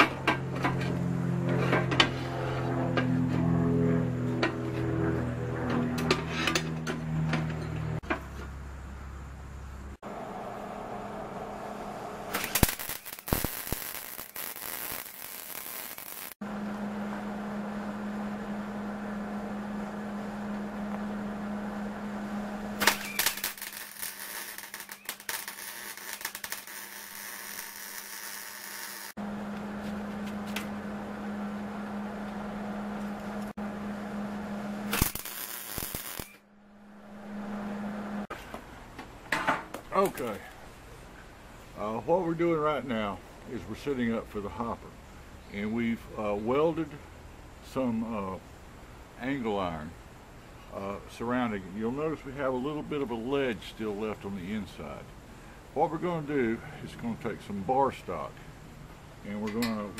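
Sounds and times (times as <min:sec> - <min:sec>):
steady low hum: 0:00.1 - 0:26.6, 0:29.2 - 0:59.9
welder arc crackling: 0:12.2 - 0:16.4, 0:22.6 - 0:29.2, 0:34.8 - 0:36.4.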